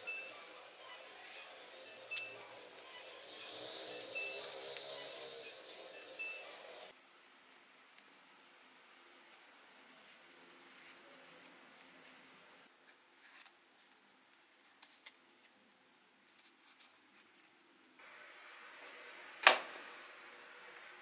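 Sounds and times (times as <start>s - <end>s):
faint paper rustling: 10.0s - 17.6s.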